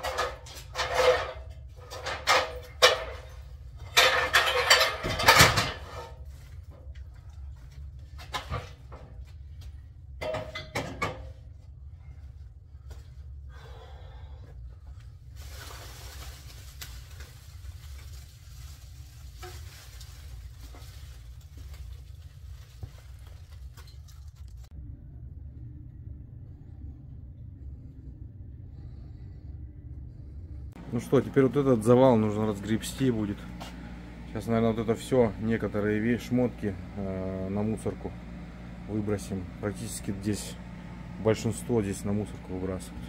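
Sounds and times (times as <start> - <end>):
display fixtures clattering: 0.0 - 6.2, 10.2 - 11.4
steady low hum: 0.0 - 43.0
rustling scraping noise: 15.2 - 24.7.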